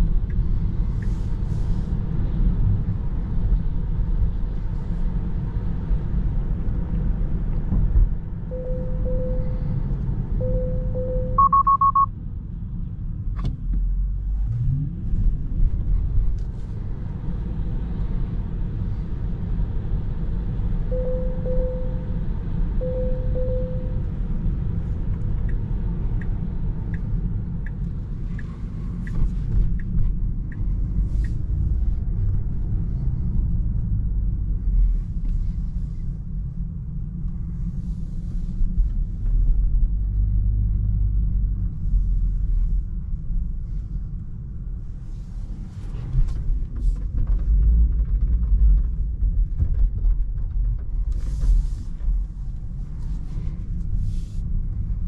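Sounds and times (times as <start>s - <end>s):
tyre and road rumble in car: 0.0s - 55.0s
turn signal ticking: 8.5s - 12.1s, 20.9s - 31.7s.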